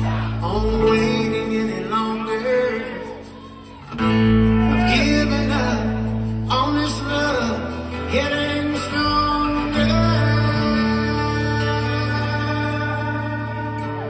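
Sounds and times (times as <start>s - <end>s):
acoustic guitars strummed: 0.0s - 14.0s
low bass: 0.0s - 14.0s
person singing: 0.0s - 14.0s.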